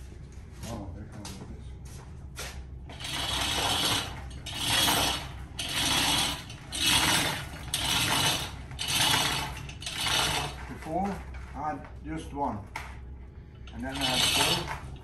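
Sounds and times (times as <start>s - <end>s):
hoist chain running: 2.9s - 11.3s, 13.6s - 15.0s.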